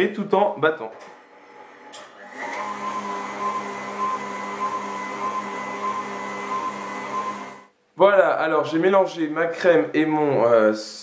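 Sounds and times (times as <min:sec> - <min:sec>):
stand mixer whisking cream: 0:02.3 - 0:07.6.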